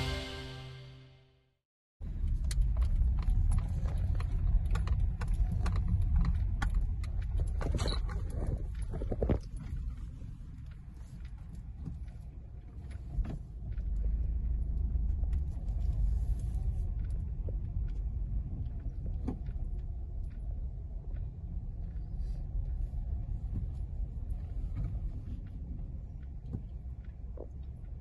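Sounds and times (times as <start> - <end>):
car engine and tyres rumbling: 2.0 - 28.0.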